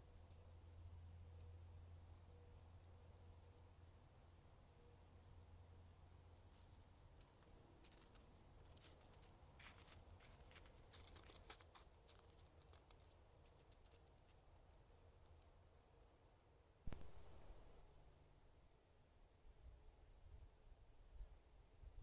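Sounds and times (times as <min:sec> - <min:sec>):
faint low hum: 0:00.0 - 0:22.0
footsteps in snow and leaves: 0:07.4 - 0:14.0.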